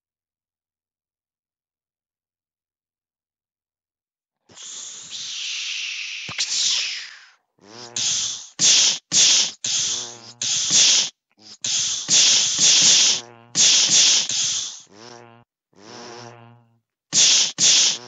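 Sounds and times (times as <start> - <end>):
person making mouth hissing sounds: 4.5 - 16.4, 17.1 - 18.0.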